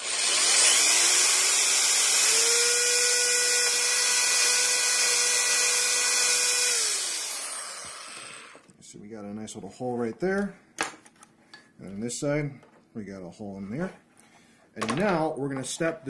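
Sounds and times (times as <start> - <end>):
electric drill whine: 0.0 - 8.7.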